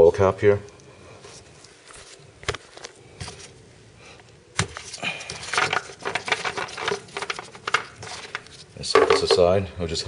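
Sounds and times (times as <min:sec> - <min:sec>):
cap rattling: 0:08.9 - 0:09.5.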